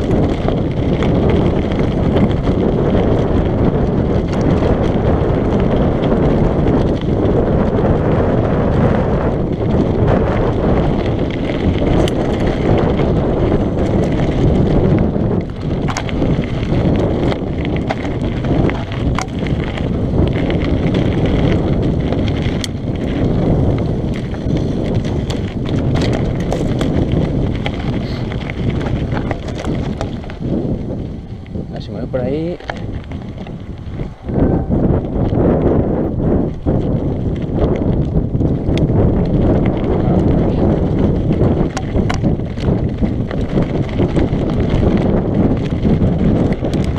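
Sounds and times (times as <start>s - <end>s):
bike rattling over rocks: 0.0s - 46.9s
wind on microphone: 0.0s - 46.9s
tyres rumbling over stones: 9.4s - 46.9s.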